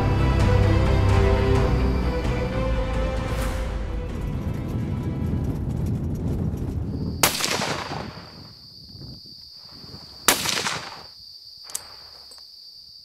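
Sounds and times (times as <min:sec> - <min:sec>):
high insect chirr: 0:06.5 - 0:13.0
gunshots with echo: 0:07.2 - 0:08.4, 0:10.3 - 0:11.1.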